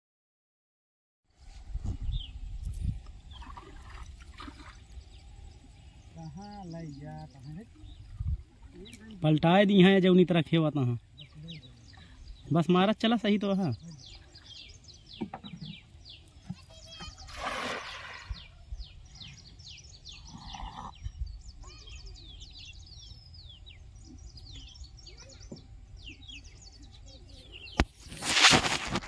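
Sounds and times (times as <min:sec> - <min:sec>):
birds chirping: 0:01.9 - 0:29.0
net splashing into water: 0:17.3 - 0:18.4, 0:28.0 - 0:29.0.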